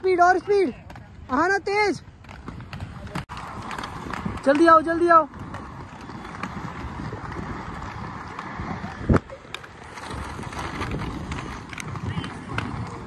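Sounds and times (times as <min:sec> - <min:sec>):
skate wheels rolling over stone: 0:00.0 - 0:13.0
wind on microphone: 0:02.4 - 0:13.0.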